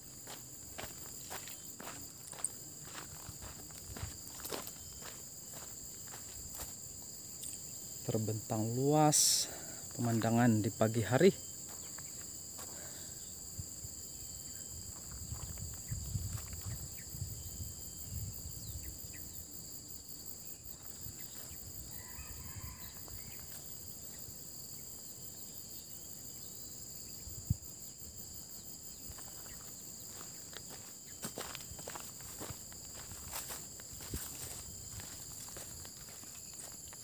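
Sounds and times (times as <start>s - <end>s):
high-pitched insect chorus: 0.0s - 37.0s.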